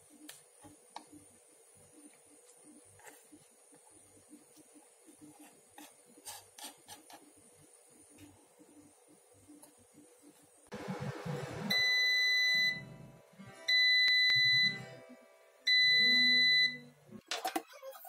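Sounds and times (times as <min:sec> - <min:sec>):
air fryer beeping: 0:10.7 - 0:13.1, 0:13.7 - 0:15.1, 0:15.7 - 0:17.0.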